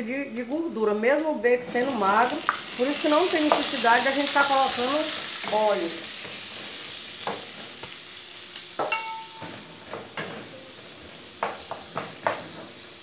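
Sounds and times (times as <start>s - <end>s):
meat sizzling in frying pan: 0.2s - 13.0s
spoon knocking against pan: 8.8s - 10.3s
short ringing clink: 8.9s - 9.4s.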